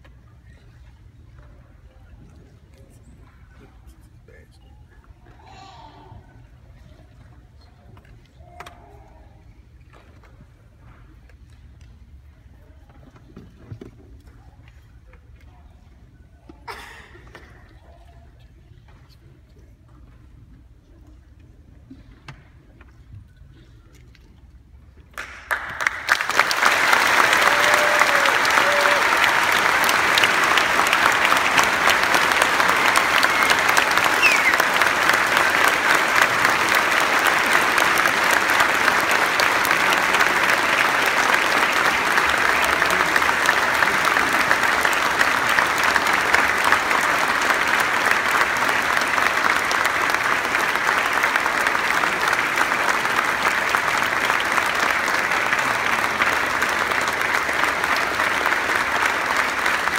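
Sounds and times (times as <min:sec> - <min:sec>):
large audience clapping: 0:25.0 - 0:59.9.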